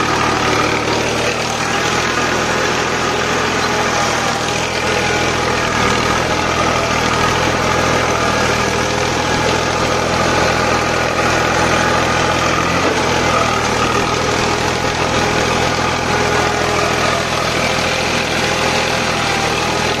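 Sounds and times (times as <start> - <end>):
tractor diesel engine under load: 0.0 - 20.0.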